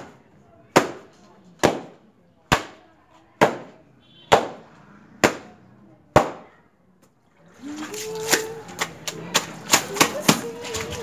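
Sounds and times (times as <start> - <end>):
wet towel slapping concrete floor: 7.6 - 11.0.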